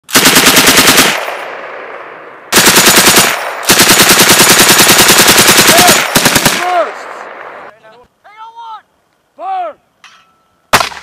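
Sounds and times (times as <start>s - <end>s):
machine gun automatic fire: 0.1s - 1.5s, 2.5s - 6.8s.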